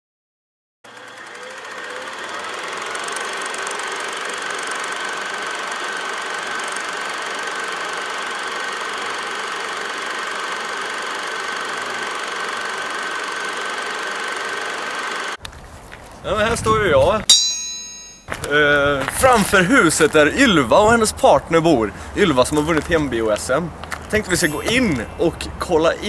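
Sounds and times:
film projector whirring: 0.9 - 15.4.

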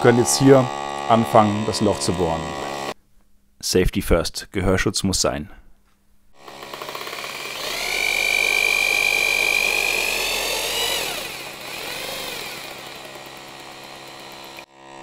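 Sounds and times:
electric drill whine: 0.0 - 3.0, 6.4 - 15.0.

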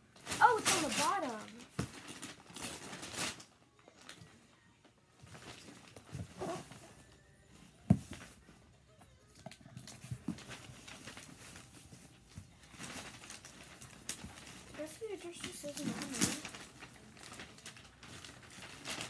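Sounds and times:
paper rustling: 0.2 - 4.3, 9.8 - 19.0.

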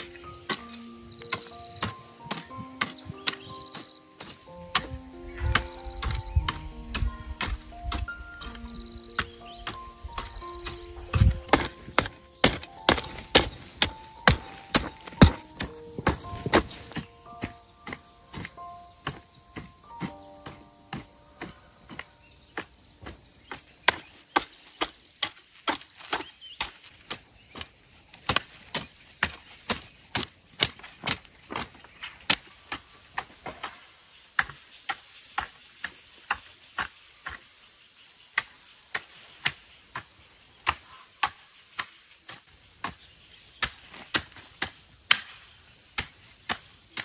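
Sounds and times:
rhythmic chopping strokes: 0.0 - 24.5.

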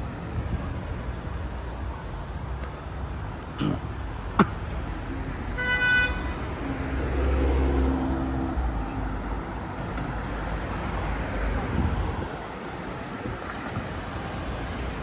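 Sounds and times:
road traffic: 0.0 - 15.0
vehicle engine: 2.9 - 15.0
car horn toot: 5.6 - 6.3.

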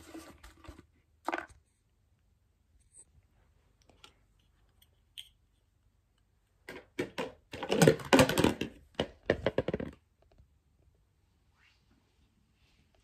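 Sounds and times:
plastic bricks clattering: 6.6 - 10.0.

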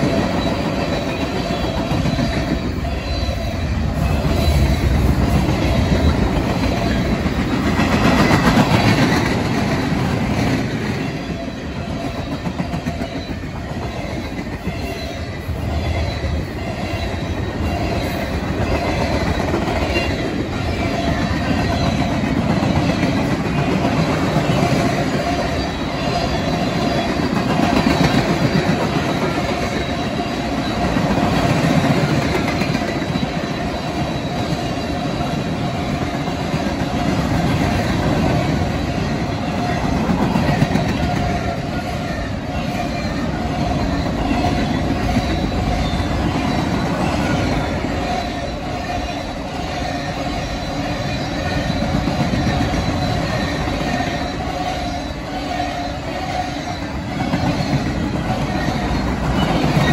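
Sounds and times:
train wheels rushing on rail: 0.0 - 59.9.

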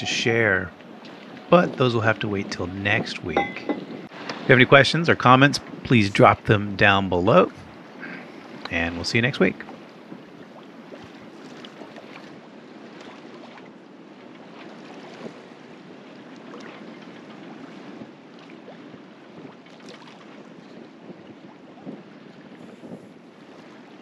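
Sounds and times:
wind on microphone: 0.0 - 6.9, 16.9 - 24.0
water splashing along a boat hull: 0.0 - 24.0.

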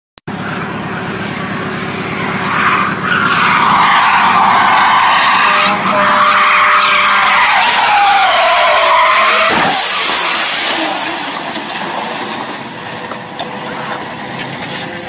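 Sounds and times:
car tyres squealing: 0.3 - 15.0
car crash: 7.1 - 14.9.

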